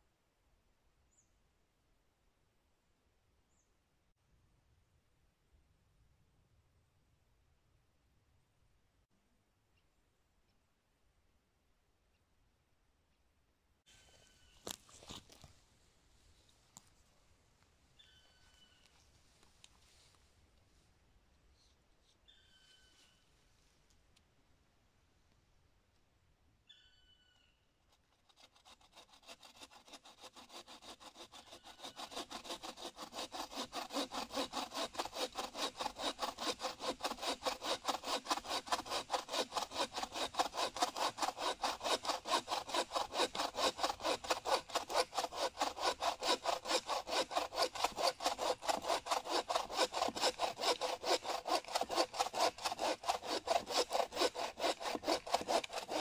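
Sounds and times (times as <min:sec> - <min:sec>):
hand saw cutting wood: 0:27.9 - 0:56.0.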